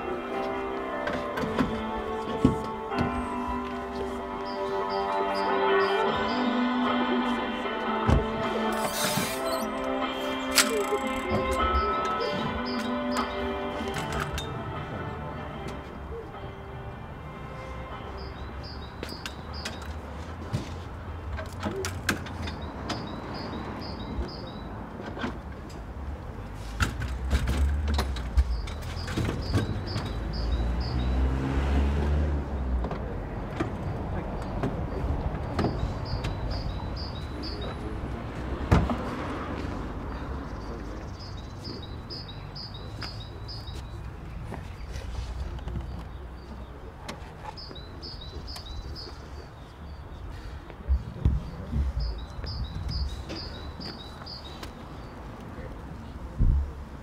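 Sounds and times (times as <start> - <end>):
bird chirping: 28.4 - 31.4.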